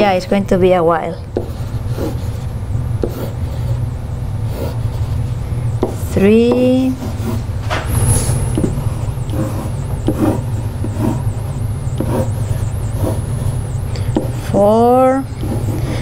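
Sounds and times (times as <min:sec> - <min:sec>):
low room hum: 0:00.0 - 0:16.0
pen tapping and scraping whiteboard: 0:01.4 - 0:02.4, 0:03.0 - 0:03.7, 0:05.8 - 0:07.4, 0:08.5 - 0:16.0.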